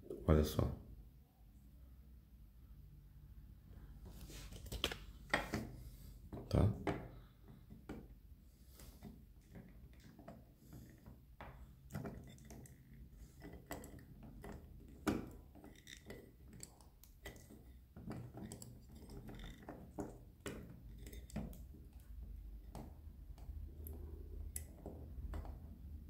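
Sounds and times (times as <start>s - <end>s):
metal toy clicking and knocking: 9.5s - 25.9s.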